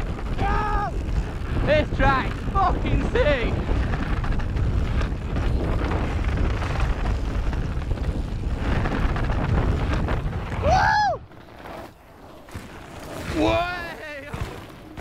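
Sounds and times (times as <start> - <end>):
wind buffeting microphone: 0.0 - 11.4
bike tyres rumbling on dirt: 0.0 - 15.0
high whoop: 10.6 - 11.3.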